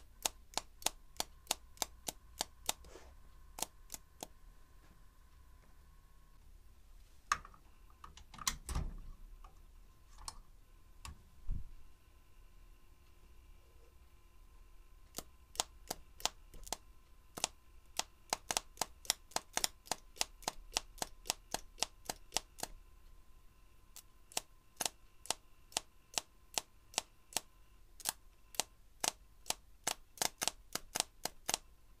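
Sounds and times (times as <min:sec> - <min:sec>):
spark plug sparks snapping: 0:15.1 - 0:22.7, 0:28.0 - 0:31.6.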